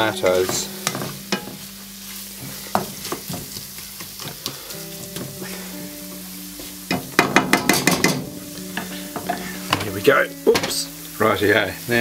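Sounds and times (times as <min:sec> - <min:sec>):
food sizzling in frying pan: 0:00.0 - 0:12.0
spatula scraping pan: 0:07.4 - 0:10.0.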